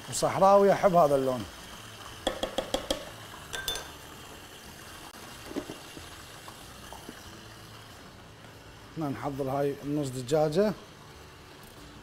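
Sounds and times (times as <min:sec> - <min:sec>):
faint frying sizzle: 0:00.0 - 0:12.0
lid knocking on pot: 0:02.2 - 0:03.9, 0:05.5 - 0:05.8
wooden spoon tapping pot: 0:02.2 - 0:03.9
glass lid clinking: 0:02.3 - 0:04.0.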